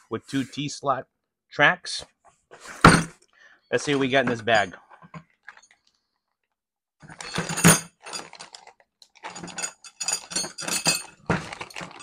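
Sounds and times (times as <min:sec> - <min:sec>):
bag being opened: 0:08.0 - 0:09.5, 0:11.3 - 0:12.0.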